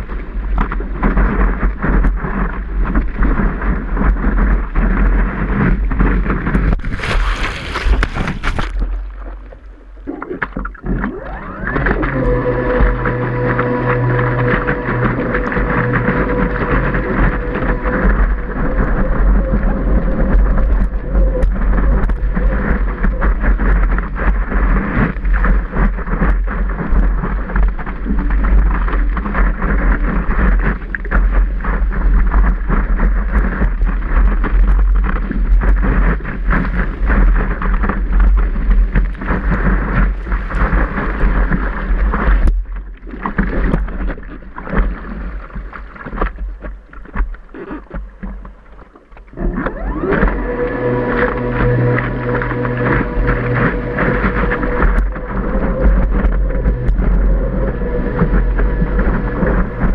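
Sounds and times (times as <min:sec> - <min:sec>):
water lapping: 0:00.0 - 0:59.9
wind buffeting microphone: 0:00.0 - 0:59.9
whitewater rushing: 0:06.8 - 0:25.4, 0:49.3 - 0:59.9.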